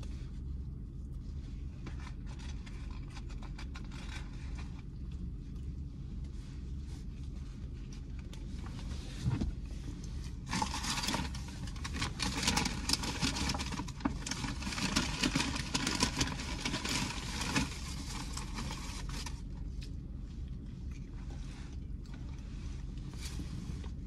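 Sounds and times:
steady low hum: 0:00.0 - 0:24.0
paper bag rustling: 0:10.3 - 0:19.5.

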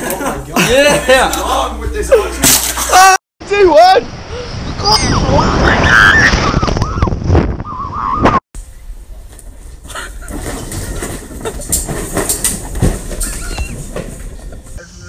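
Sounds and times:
rumbling rattling clatter: 0:10.2 - 0:14.8.

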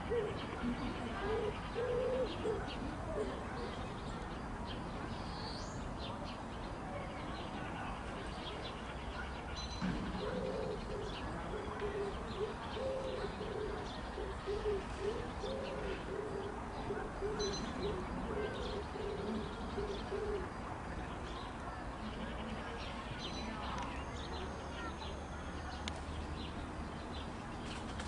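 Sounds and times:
dove cooing: 0:00.0 - 0:03.7, 0:10.1 - 0:20.5.

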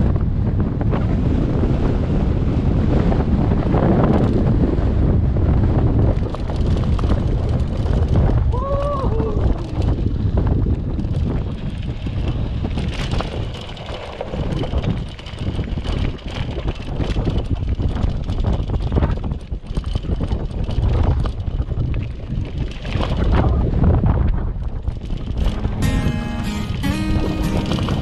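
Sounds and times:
wind buffeting microphone: 0:00.0 - 0:25.8
bike rattling on rough track: 0:02.8 - 0:08.9, 0:09.5 - 0:25.5.

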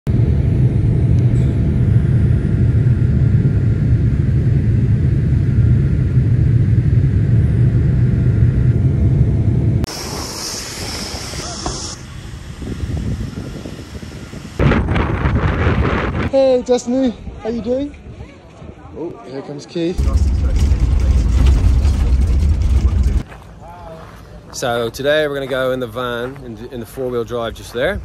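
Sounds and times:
jet engine cabin rumble: 0:00.1 - 0:16.3, 0:20.0 - 0:23.3.

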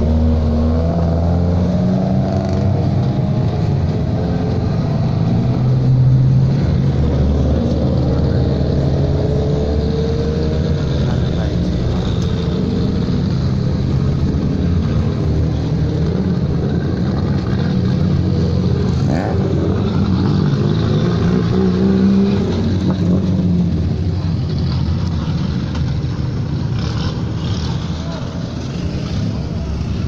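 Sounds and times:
race car engines passing: 0:00.0 - 0:30.0.

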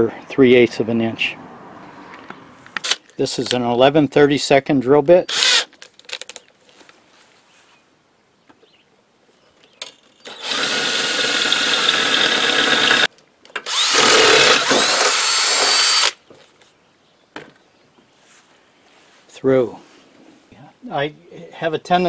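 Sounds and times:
drill boring through metal: 0:05.3 - 0:05.7, 0:10.3 - 0:16.2.

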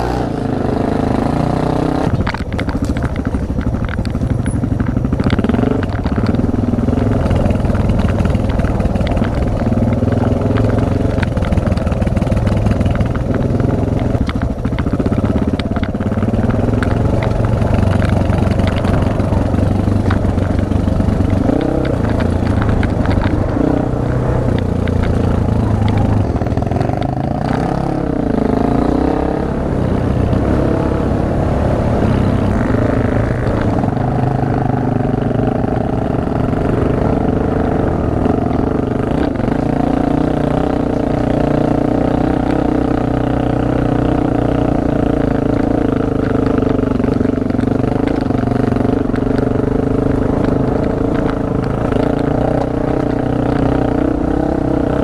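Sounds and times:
motorbike engine revving: 0:00.0 - 0:55.0
stones and bike parts clattering: 0:02.1 - 0:06.4.

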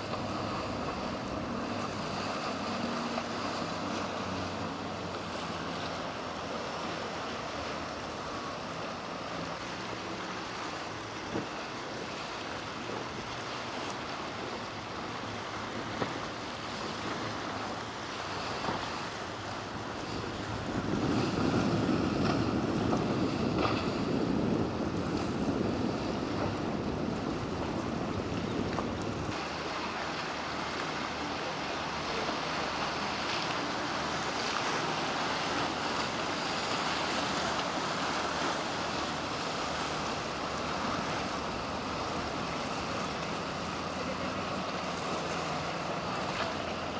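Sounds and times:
motorboat running: 0:00.0 - 0:46.9
surf rushing: 0:00.0 - 0:46.9
wind on microphone: 0:18.5 - 0:31.0.

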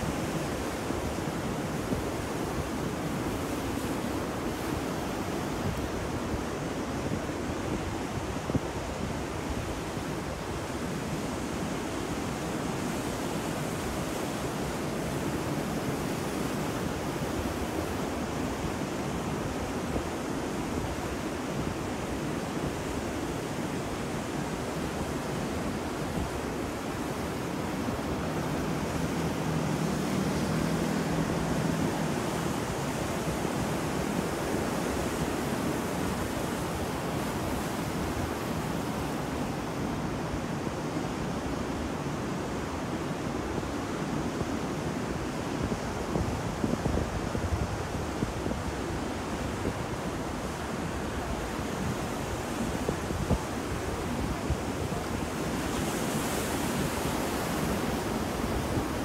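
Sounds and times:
rough surf breaking: 0:25.5 - 0:40.3.

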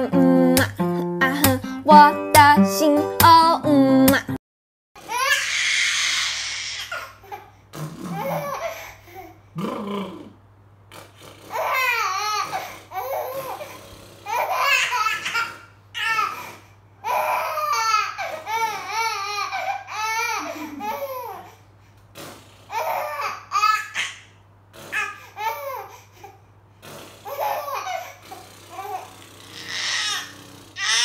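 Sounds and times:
baby laughing: 0:07.0 - 0:08.9, 0:11.5 - 0:21.5, 0:27.2 - 0:31.0.

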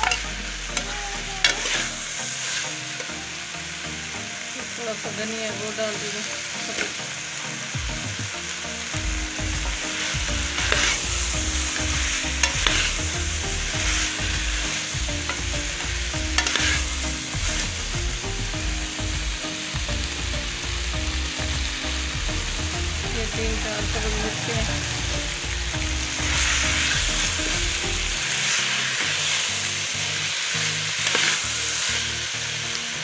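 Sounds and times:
vegetables sizzling in pan: 0:00.0 - 0:33.0
metal ladle scraping pan: 0:01.4 - 0:03.1, 0:09.9 - 0:15.6, 0:16.2 - 0:17.6.

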